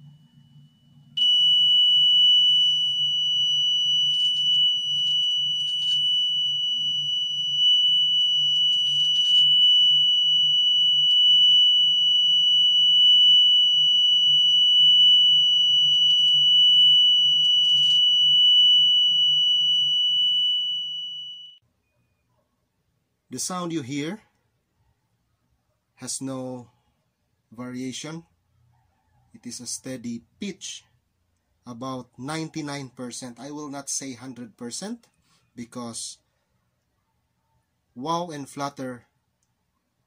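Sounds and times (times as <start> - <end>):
steady test tone: 0.0 - 21.0.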